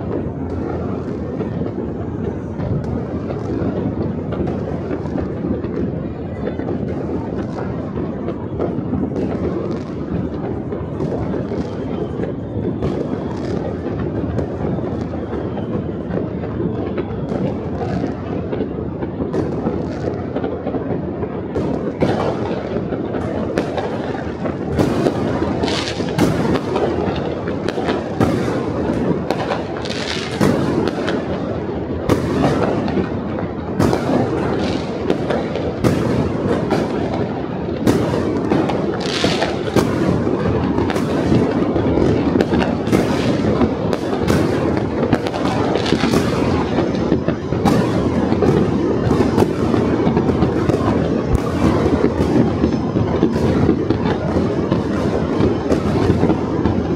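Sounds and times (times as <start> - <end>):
rumble of distant fireworks: 0.0 - 56.9
sharp firecracker cracks: 37.8 - 52.2.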